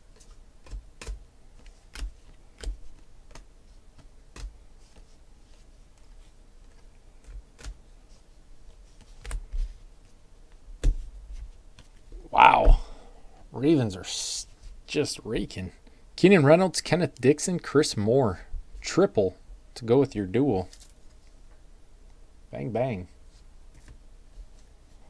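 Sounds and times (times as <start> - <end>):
trading cards shuffled by hand: 0.1 - 10.2.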